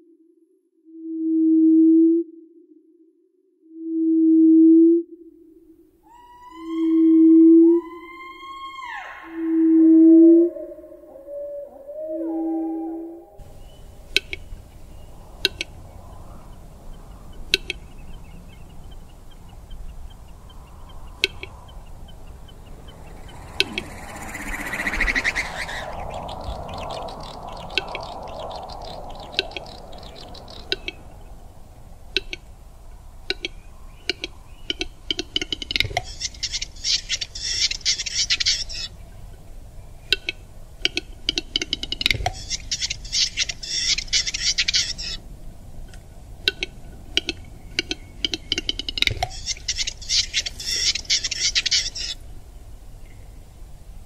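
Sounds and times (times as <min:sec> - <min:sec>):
night birds calling: 0:06.0 - 0:53.7
rapid high chattering calls: 0:13.4 - 0:31.5, 0:33.5 - 0:39.0, 0:41.1 - 0:45.2, 0:47.6 - 0:52.2.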